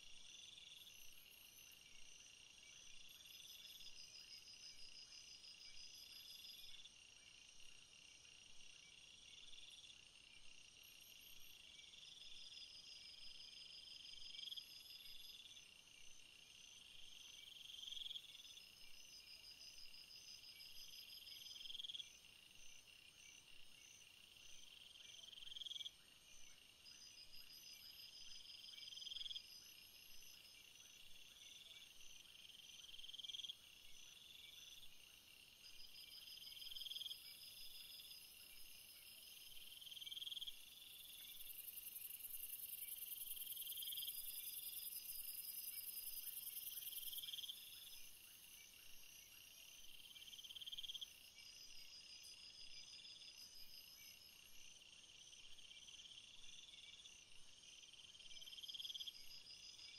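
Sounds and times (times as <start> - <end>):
cricket-like call: 27.0 - 57.2
fast insect chirping: 35.7 - 48.6.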